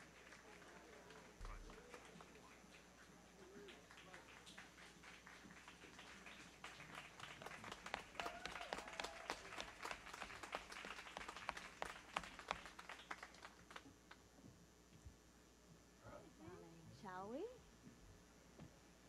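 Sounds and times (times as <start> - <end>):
audience applauding faintly: 0.0 - 14.2.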